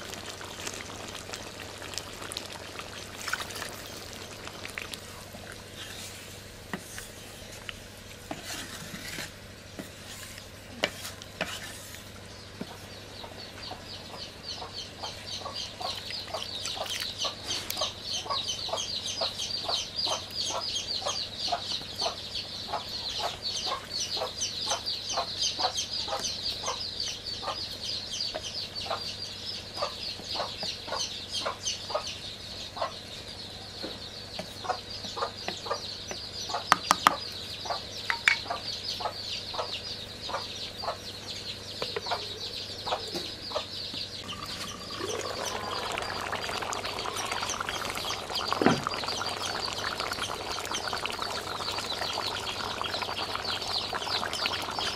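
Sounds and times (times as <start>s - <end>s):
curry bubbling in pot: 0.0s - 9.3s, 44.2s - 54.9s
hens clucking: 44.2s - 54.9s
high chirping: 44.2s - 54.9s.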